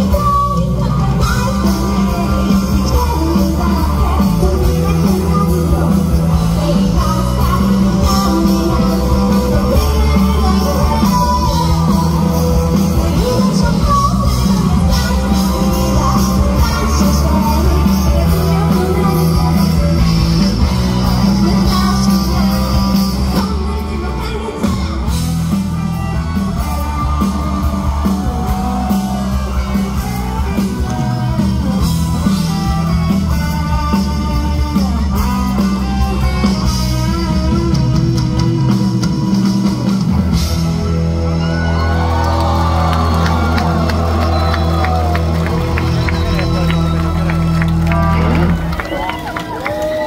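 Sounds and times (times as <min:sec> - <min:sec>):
woman singing: 0:00.0 - 0:25.3
live rock band: 0:00.0 - 0:50.0.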